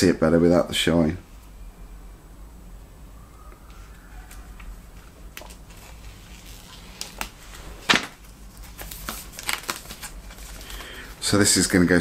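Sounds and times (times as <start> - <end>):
plastic shrink-wrap crinkling: 4.3 - 11.7.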